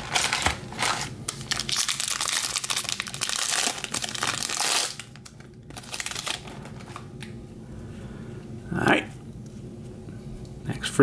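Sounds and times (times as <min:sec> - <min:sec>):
foil wrapper crinkling and tearing: 0:00.0 - 0:07.3.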